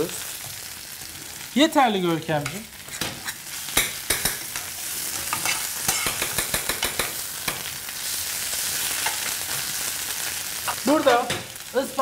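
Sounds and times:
spinach sizzling in oil: 0.0s - 12.0s
metal utensils clicking on pans: 2.2s - 7.7s, 8.9s - 9.7s.

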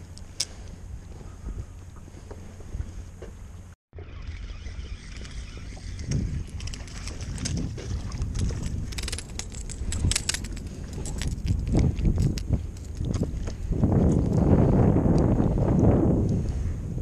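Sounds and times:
wind on microphone: 0.0s - 3.2s, 4.0s - 17.0s
fishing reel clicking and rattling: 4.0s - 13.2s.

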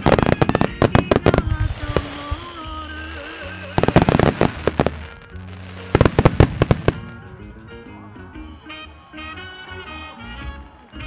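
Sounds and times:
fireworks bursting: 0.0s - 7.2s
music: 0.0s - 11.0s.

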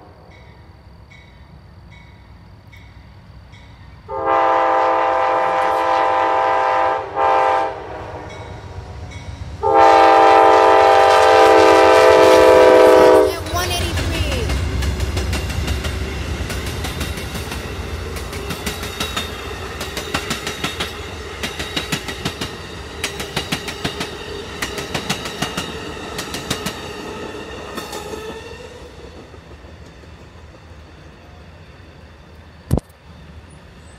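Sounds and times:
train rumble: 0.0s - 33.9s
train wheels clicking over rail joints: 13.9s - 31.2s.

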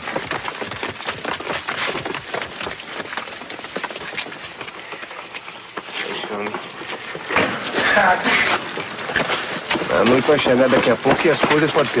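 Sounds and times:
people scrambling over stone rubble: 0.0s - 12.0s.

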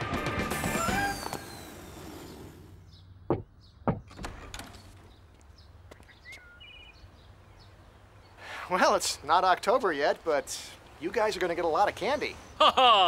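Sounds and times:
knocks on wooden door: 3.3s - 4.2s.

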